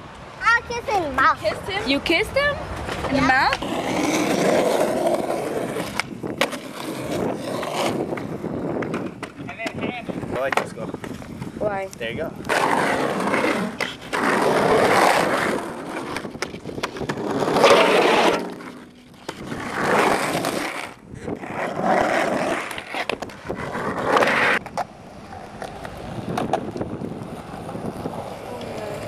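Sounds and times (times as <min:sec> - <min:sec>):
skateboard wheels rolling on concrete: 0:00.0 - 0:29.0
skateboard clacks: 0:02.8 - 0:11.5, 0:12.4 - 0:29.0.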